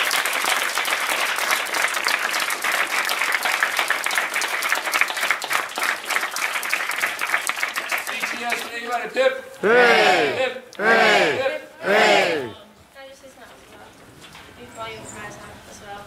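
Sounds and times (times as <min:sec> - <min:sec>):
crowd applauding: 0:00.0 - 0:12.5.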